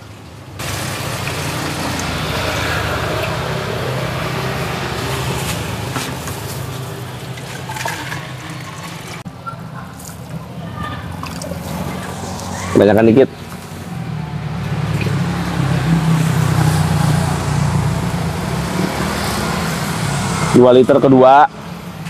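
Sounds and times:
water pouring into a pot: 0:00.6 - 0:09.2
water running into a jug: 0:00.6 - 0:09.2.

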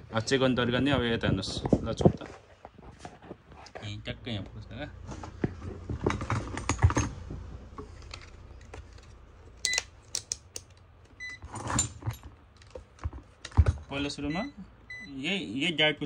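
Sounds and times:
steady low hum: 0:03.2 - 0:13.0.

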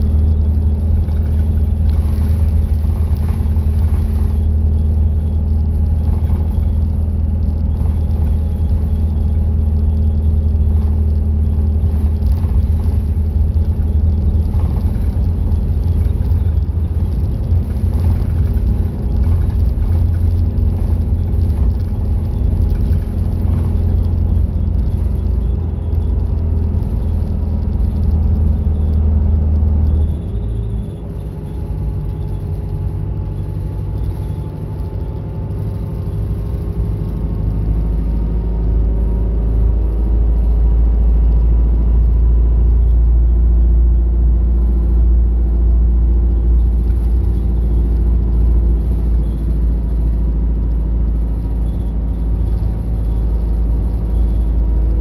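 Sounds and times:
bus engine drone: 0:00.0 - 0:55.0
road rumble: 0:00.0 - 0:55.0.

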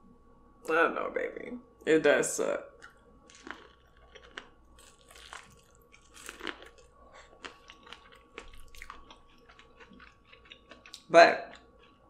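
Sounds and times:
chewing and crunching corn: 0:02.8 - 0:12.0
wet mouth clicks: 0:07.2 - 0:12.0.

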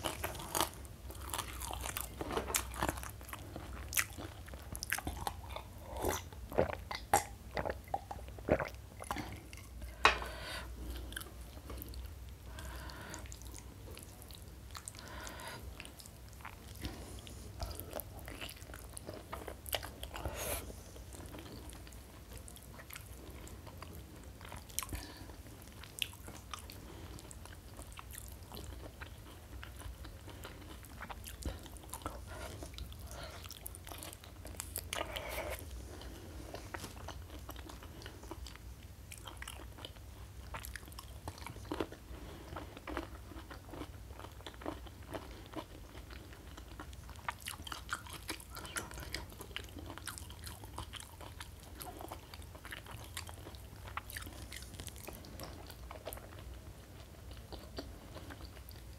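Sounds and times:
person chewing and biting: 0:00.0 - 0:09.5, 0:36.6 - 0:56.5.

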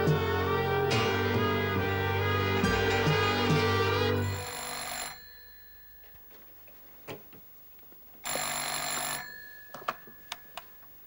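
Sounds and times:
string music: 0:00.0 - 0:04.4
telephone bell ringing: 0:04.2 - 0:06.3, 0:08.2 - 0:11.0.

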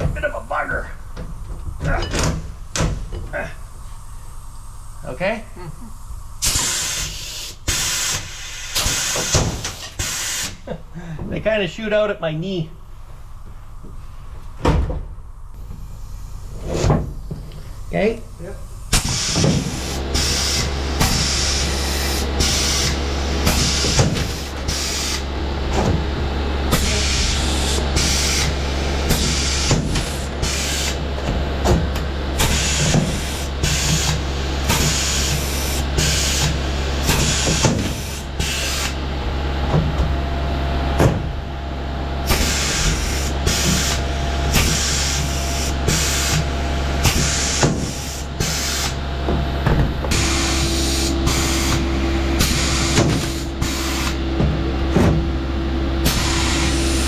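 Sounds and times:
steady low hum: 0:00.0 - 0:57.0
pneumatic tool air hiss: 0:05.8 - 0:10.7, 0:18.9 - 0:25.3, 0:26.7 - 0:31.0, 0:32.4 - 0:39.0, 0:42.2 - 0:49.0, 0:50.1 - 0:54.2, 0:56.0 - 0:57.0.

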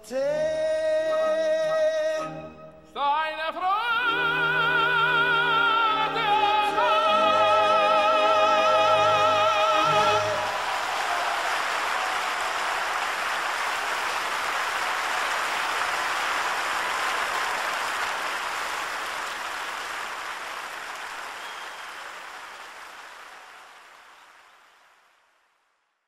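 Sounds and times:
audience applauding: 0:08.3 - 0:25.4.

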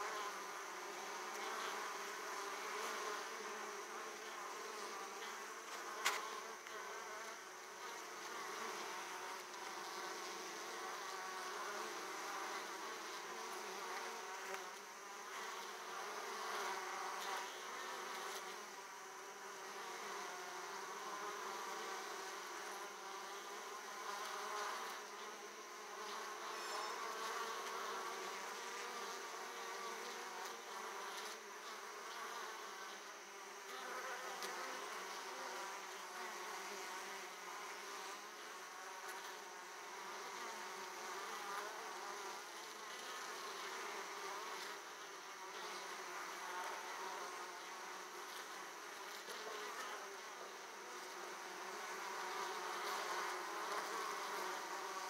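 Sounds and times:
bees buzzing: 0:00.0 - 0:55.0.

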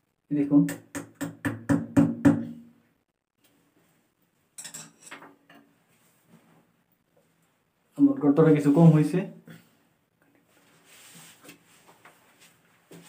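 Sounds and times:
faint metallic clinks: 0:04.6 - 0:05.6.

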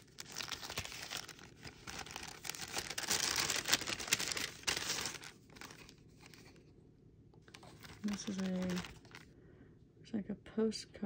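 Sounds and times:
paper packaging rustling: 0:00.0 - 0:06.7, 0:07.4 - 0:09.3.

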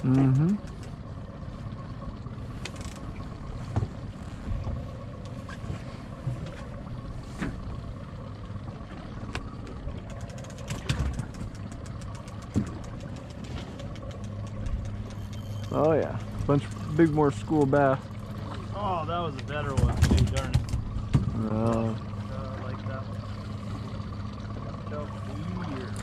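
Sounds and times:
boat motor idling: 0:00.0 - 0:26.0
rapid clicking: 0:10.0 - 0:15.4.

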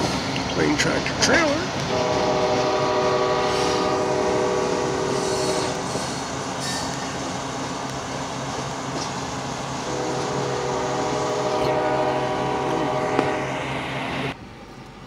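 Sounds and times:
diesel locomotives rumbling past: 0:00.0 - 0:15.0
locomotive horn blast: 0:01.9 - 0:07.0, 0:09.8 - 0:14.4.

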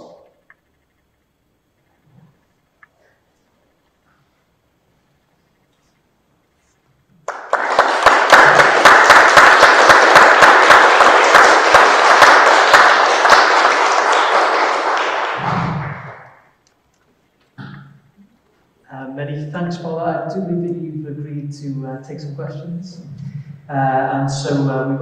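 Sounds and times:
audience applauding: 0:07.2 - 0:16.5.

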